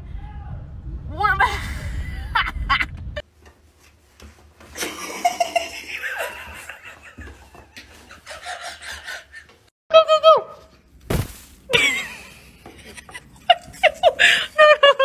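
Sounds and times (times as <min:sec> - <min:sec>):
person laughing: 0:11.7 - 0:15.0.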